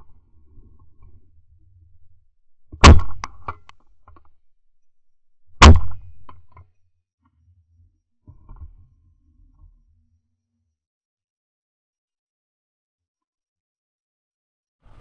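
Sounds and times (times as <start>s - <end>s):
shotgun shots with echo: 2.8s - 3.3s, 5.6s - 6.3s.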